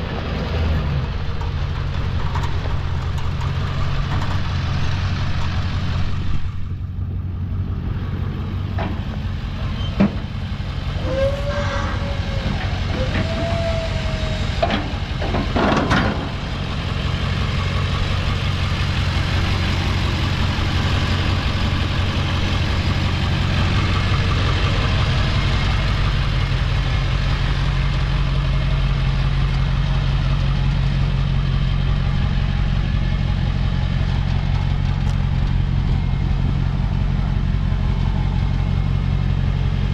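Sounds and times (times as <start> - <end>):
pickup engine idling: 0.0 - 39.9
short squeaks: 9.6 - 10.2, 11.0 - 14.6
loud clunk: 14.6 - 16.5.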